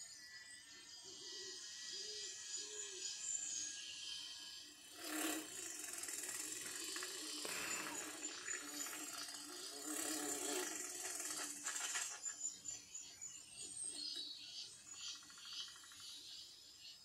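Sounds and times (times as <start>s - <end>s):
busy mechanical sound effects: 4.7s - 12.3s.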